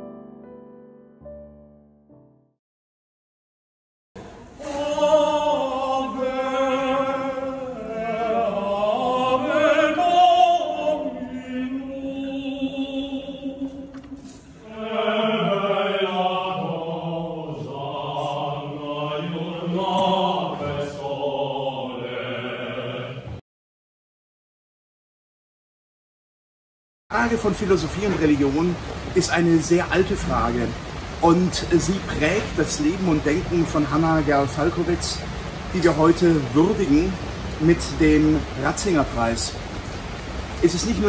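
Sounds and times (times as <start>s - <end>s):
men singing unaccompanied: 4.6s - 14.0s, 14.6s - 23.4s.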